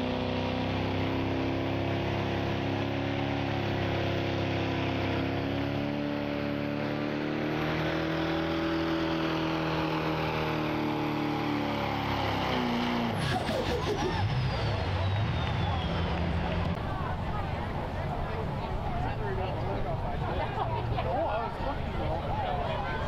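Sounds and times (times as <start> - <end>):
diesel truck engine at high revs: 0.0 - 18.0.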